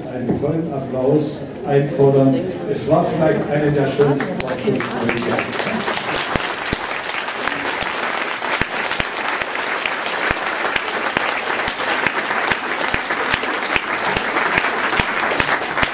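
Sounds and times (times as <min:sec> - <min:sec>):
audience applause: 0:03.7 - 0:15.9.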